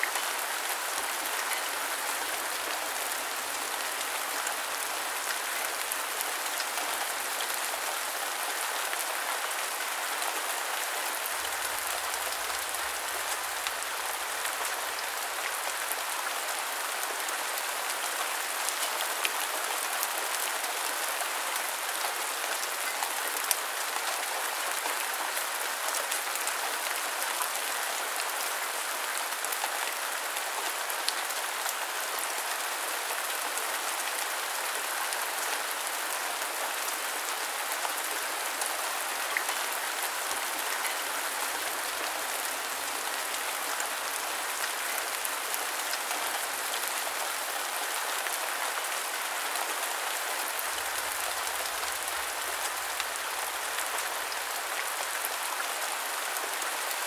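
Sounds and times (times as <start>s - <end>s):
steady rain hiss: 0.0s - 57.0s.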